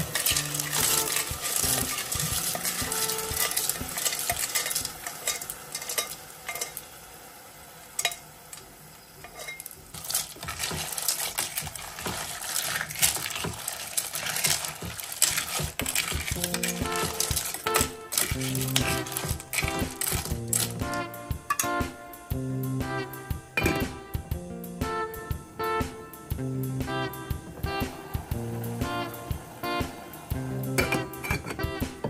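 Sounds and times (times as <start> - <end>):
snail shells clattering in steel pot: 0.0 - 7.0, 8.0 - 21.8, 30.8 - 31.7
food frying in pot: 0.0 - 32.0.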